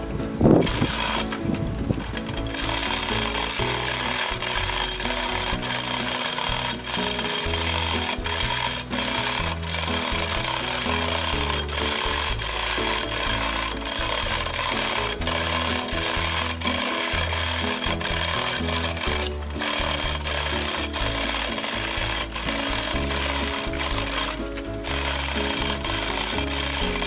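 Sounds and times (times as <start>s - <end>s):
background music with bass and beat: 0.0s - 27.0s.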